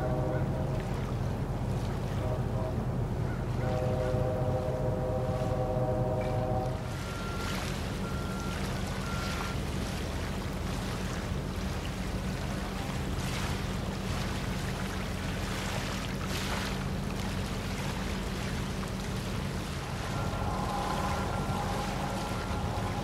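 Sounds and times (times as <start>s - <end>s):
diesel engines droning: 0.0s - 15.5s, 16.2s - 23.0s
wind and water hiss: 0.0s - 23.0s
thin high tone: 19.9s - 23.0s.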